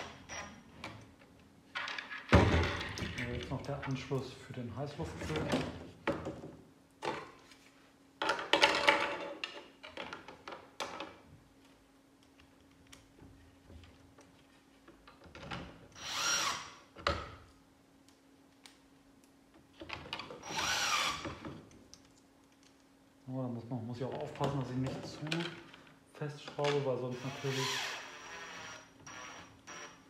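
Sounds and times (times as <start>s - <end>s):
plastic parts knocking and clattering: 8.2s - 11.3s
cordless drill driving screws: 16.0s - 16.8s, 20.4s - 21.4s, 27.1s - 30.0s.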